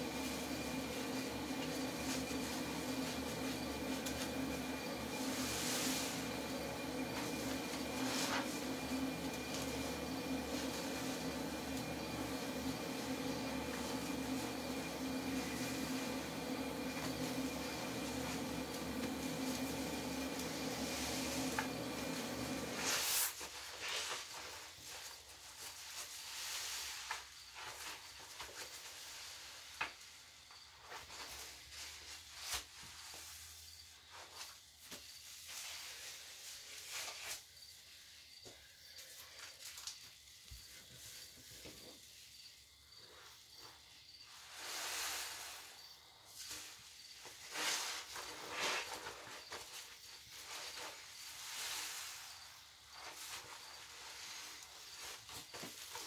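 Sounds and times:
steady hum: 0:00.0 - 0:23.2
foam crackling and fizzing: 0:00.0 - 0:24.5.

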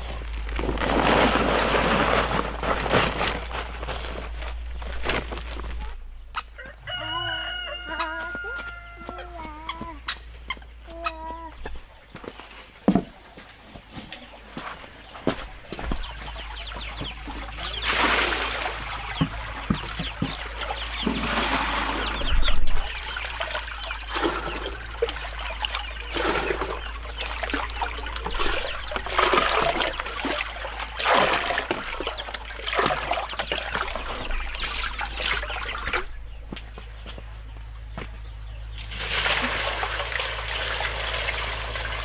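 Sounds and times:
water pouring into buckets: 0:00.0 - 0:04.5, 0:16.2 - 0:36.1, 0:38.8 - 0:42.0.

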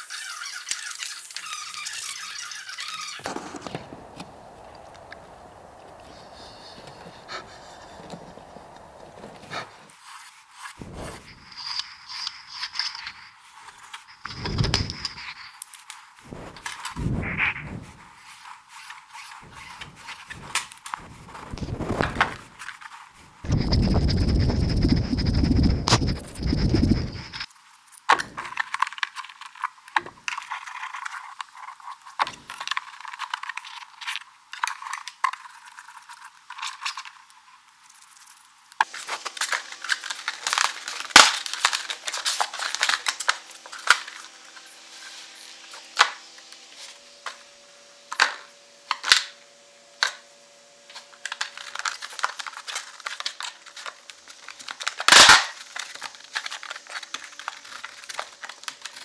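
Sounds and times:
tools scraping and shaving wood: 0:00.0 - 0:27.5.

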